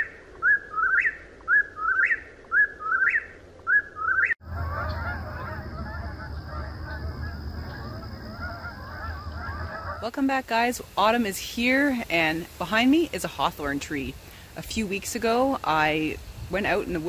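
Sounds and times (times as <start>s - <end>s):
bird whistled song: 0.0s - 10.0s
geese honking: 4.4s - 10.3s.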